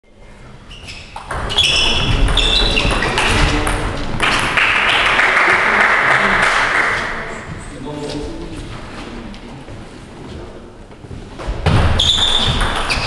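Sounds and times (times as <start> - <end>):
shoe squeaks: 0.6 - 3.5, 12.0 - 13.0
crowd applauding: 4.2 - 7.5.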